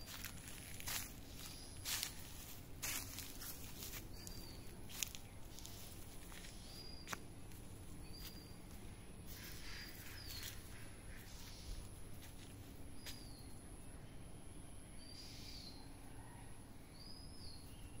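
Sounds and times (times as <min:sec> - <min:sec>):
footsteps rustling in dry grass: 0:00.0 - 0:13.4
small bird calling: 0:08.0 - 0:14.2, 0:15.0 - 0:18.0.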